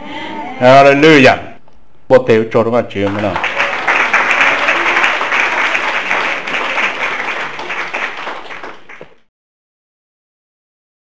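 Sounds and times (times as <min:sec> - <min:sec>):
congregation applauding: 0:03.0 - 0:09.3.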